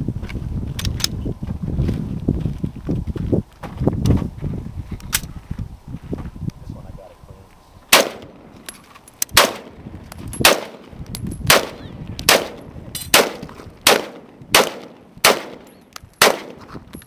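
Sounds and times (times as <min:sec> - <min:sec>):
rifle single shots: 0:07.9 - 0:08.5, 0:09.3 - 0:09.8, 0:10.4 - 0:16.6.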